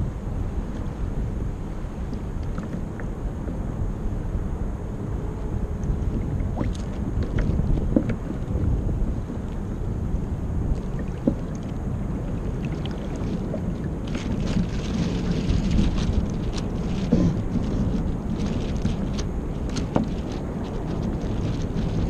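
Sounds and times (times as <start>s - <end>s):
water splashing against hull: 0.0s - 4.2s, 5.0s - 22.0s
wind buffeting microphone: 0.0s - 22.0s.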